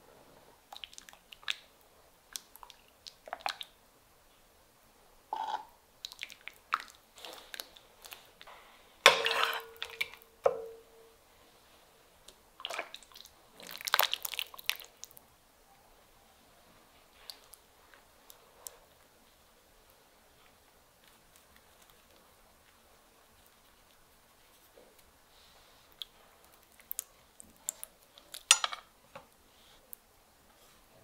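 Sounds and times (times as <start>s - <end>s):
ladle slopping stew in pot: 9.0s - 10.9s, 12.3s - 15.1s
stew splashing into metal bowl: 9.1s - 10.8s
ladle clanking against pot: 9.1s - 10.9s.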